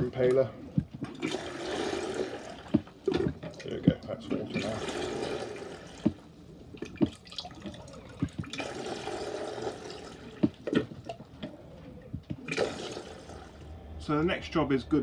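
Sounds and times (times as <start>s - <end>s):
water dripping: 0.0s - 13.7s
water splashing into plastic jug: 0.8s - 11.4s, 12.3s - 13.5s.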